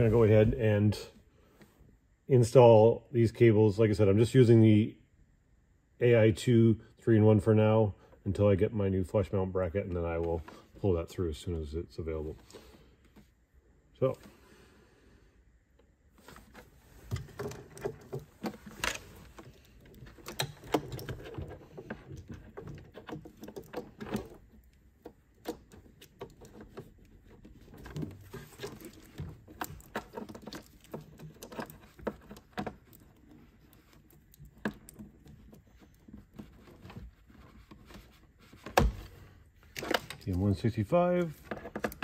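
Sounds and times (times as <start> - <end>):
cables rustling: 15.7 - 42.0
connectors clicking and knocking: 15.7 - 42.0.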